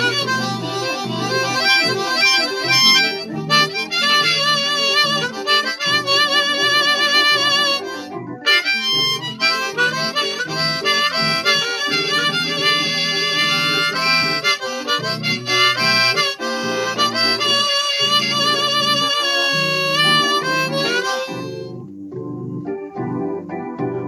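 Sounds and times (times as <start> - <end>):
harmonica notes: 0.0 - 21.9
blues keyboard chords: 0.0 - 24.0.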